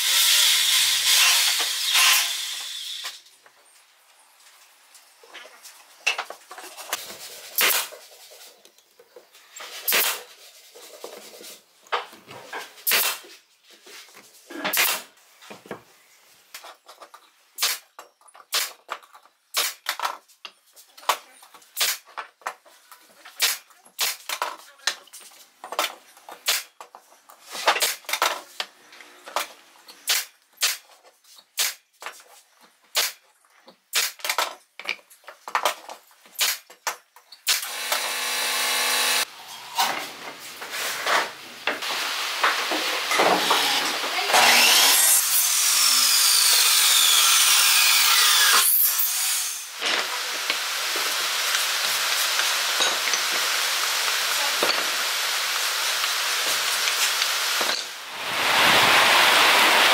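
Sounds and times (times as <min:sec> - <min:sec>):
nail gun firing: 0:07.6 - 0:07.9, 0:09.9 - 0:10.2, 0:12.9 - 0:13.2, 0:14.7 - 0:15.1, 0:17.6 - 0:17.8, 0:18.5 - 0:18.8, 0:19.5 - 0:19.9, 0:21.8 - 0:22.0, 0:23.4 - 0:24.3, 0:26.4 - 0:26.7, 0:30.1 - 0:30.8, 0:33.0 - 0:33.2, 0:33.9 - 0:34.3, 0:36.4 - 0:36.6, 0:37.4 - 0:39.2.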